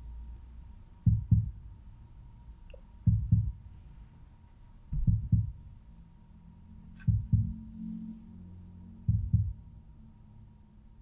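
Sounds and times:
slow heartbeat: 1.0s - 1.8s, 3.0s - 3.8s, 4.9s - 5.8s, 7.0s - 7.8s, 9.0s - 9.7s.

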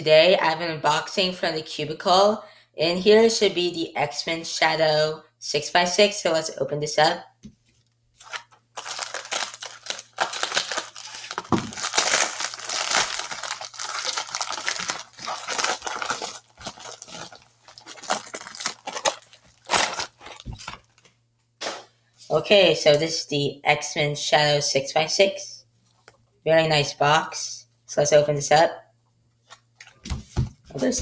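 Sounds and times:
plastic mailer crinkling and tearing: 8.2s - 21.1s.

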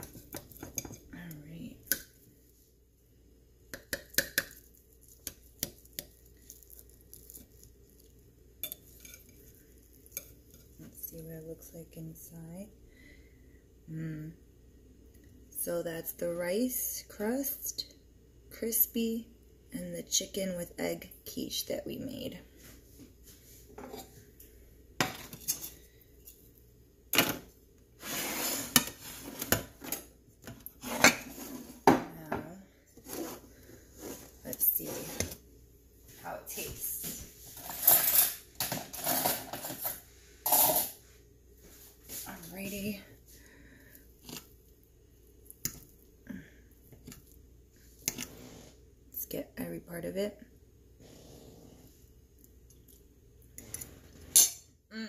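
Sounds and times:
plate scraping across counter: 28.0s - 30.0s, 30.8s - 32.0s, 33.0s - 35.4s, 48.1s - 48.8s.

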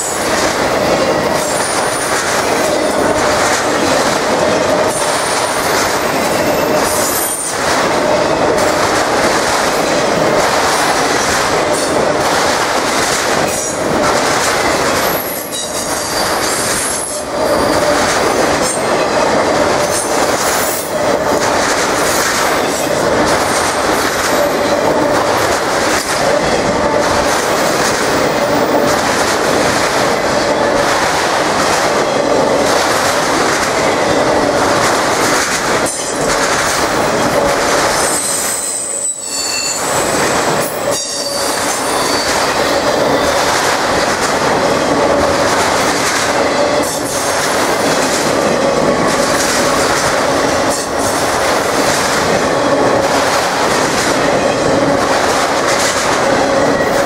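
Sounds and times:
freight train wheels rumbling on rails: 0.0s - 57.0s
high-pitched wheel squeals: 38.0s - 40.1s, 40.9s - 42.4s.

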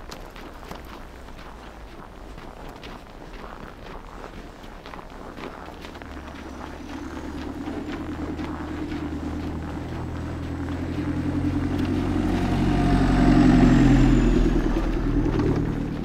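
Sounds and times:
truck driving past: 5.6s - 16.0s.

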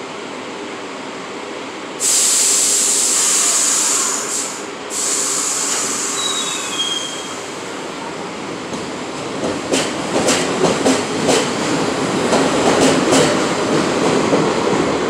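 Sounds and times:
train air brakes hissing: 2.0s - 7.8s
faint short squeals: 5.6s - 7.5s.

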